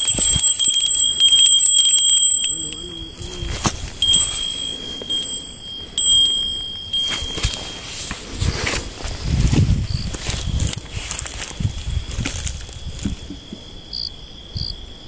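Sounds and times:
fishing rod bell ringing: 0.0 - 8.4.

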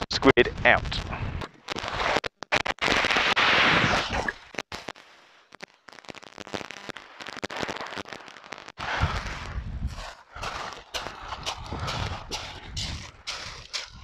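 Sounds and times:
crunching clicks: 0.7 - 3.4.

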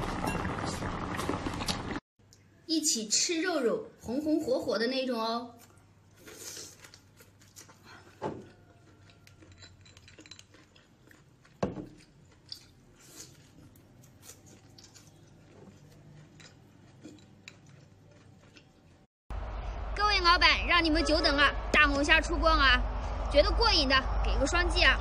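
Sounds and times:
person chewing: 5.6 - 19.1.

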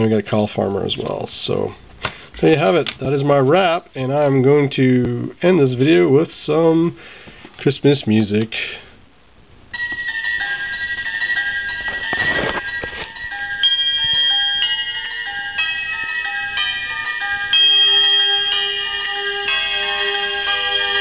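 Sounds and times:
electronic chime melody: 9.7 - 21.0
handling rustle: 11.8 - 13.3.

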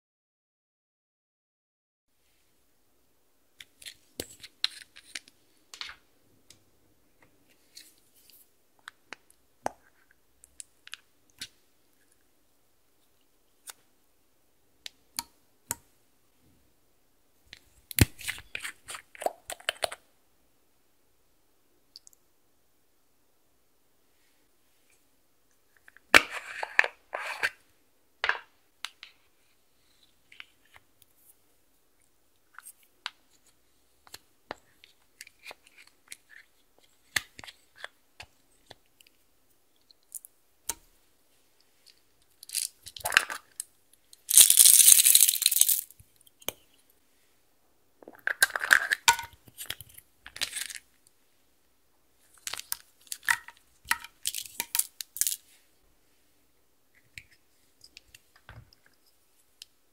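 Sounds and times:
beads rattling into glass dish: 44.3 - 45.9, 54.2 - 55.4.

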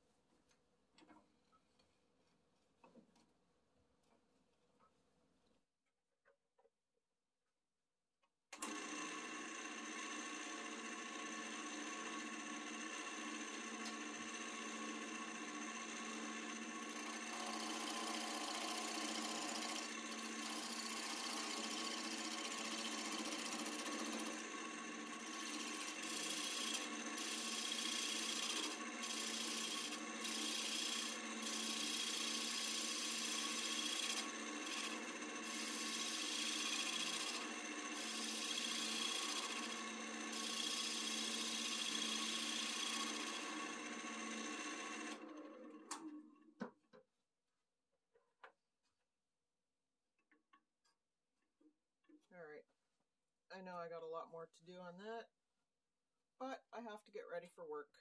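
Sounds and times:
wood lathe motor hum: 8.6 - 46.3
turning tool scraping wood: 15.9 - 43.6.

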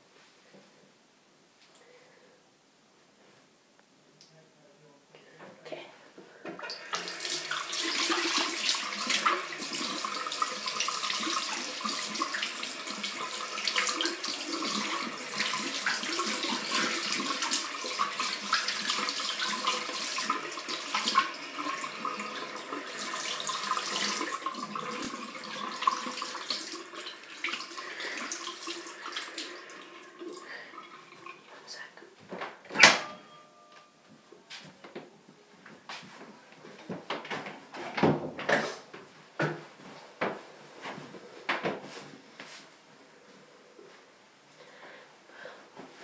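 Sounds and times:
tap water running: 6.5 - 31.6.

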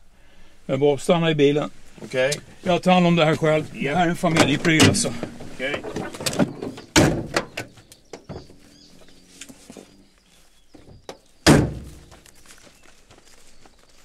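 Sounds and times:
car door slamming shut: 4.3 - 7.7, 11.4 - 12.1.

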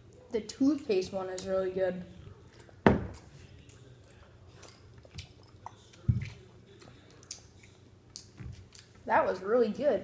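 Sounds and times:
faint chewing: 2.2 - 9.1.

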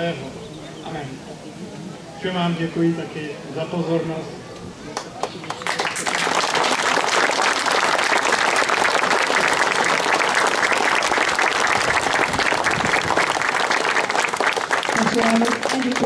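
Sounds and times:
crowd applauding: 4.9 - 16.0.

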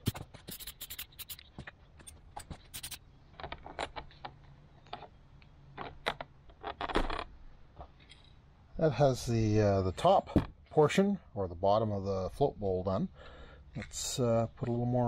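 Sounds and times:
spray can hissing in bursts: 0.0 - 1.5, 2.7 - 3.0
masking tape crinkling: 0.0 - 1.6.

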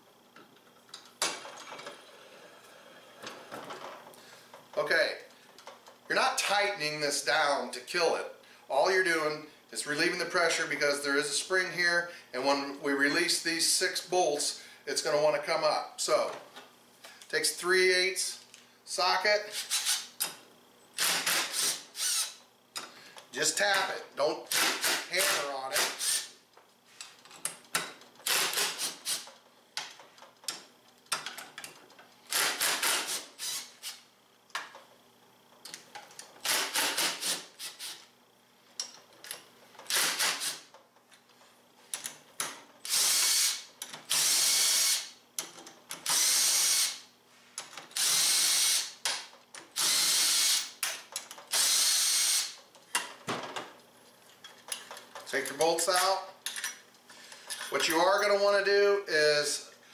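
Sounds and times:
impact driver running: 21.0 - 22.4, 24.5 - 26.3, 28.2 - 29.3, 32.3 - 34.0, 36.4 - 38.0, 39.9 - 40.6, 48.0 - 49.0, 49.8 - 50.8.

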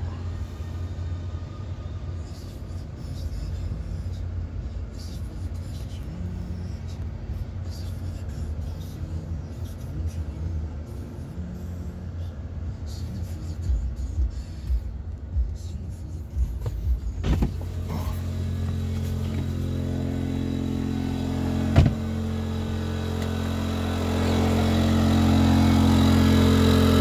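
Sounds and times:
generator humming: 13.6 - 27.0.

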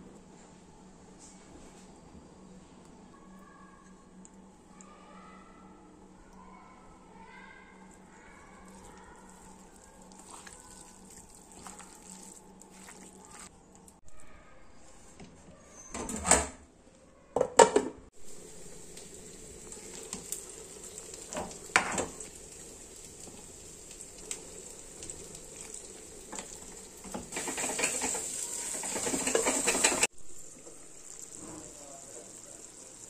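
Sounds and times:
stirring and scraping: 7.7 - 14.2, 25.1 - 30.1
chicken sizzling in a pan: 18.1 - 33.0
metal spoon clattering on pan: 27.3 - 30.1.

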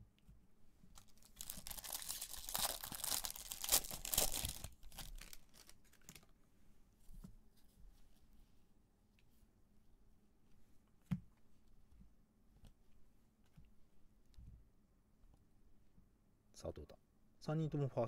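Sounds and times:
soft foil crinkles: 0.9 - 6.3
foil wrapper tearing: 1.0 - 6.3.

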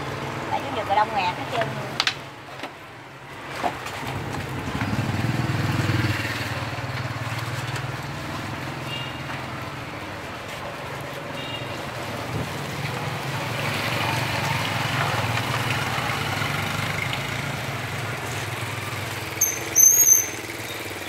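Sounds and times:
street traffic with motorbikes: 0.0 - 21.0
wooden spatula squeaking on pan: 19.4 - 20.4.

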